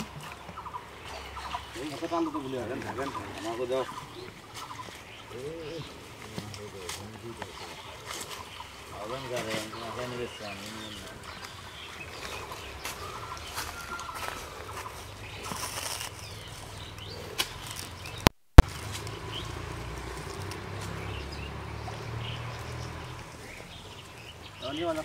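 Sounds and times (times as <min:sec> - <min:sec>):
hands rummaging through wet leaves: 0:00.0 - 0:25.0.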